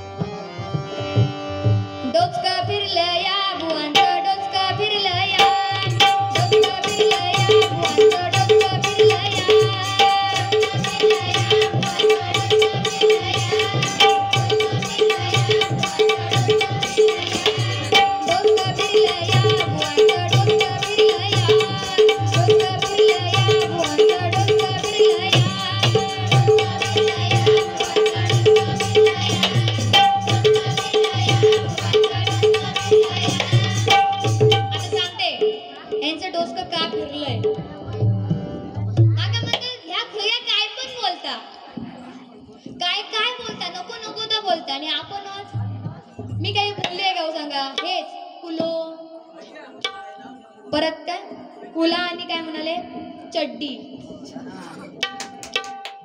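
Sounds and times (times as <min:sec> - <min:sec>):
harmonium melody: 0:00.0 - 0:40.4
hand drum fast rhythm: 0:05.2 - 0:35.4, 0:54.8 - 0:56.0.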